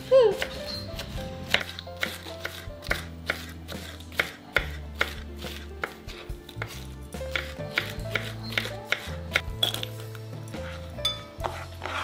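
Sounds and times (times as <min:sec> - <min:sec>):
knife chopping on wooden board: 0:00.4 - 0:09.5, 0:11.4 - 0:12.0.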